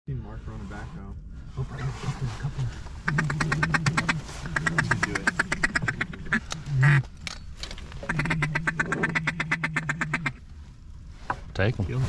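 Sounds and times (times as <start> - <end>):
duck call quacking chatter: 3.0 - 7.0, 8.0 - 10.4.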